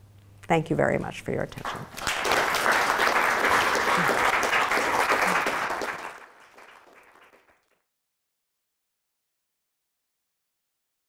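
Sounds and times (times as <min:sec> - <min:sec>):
audience applauding: 0:01.6 - 0:07.8.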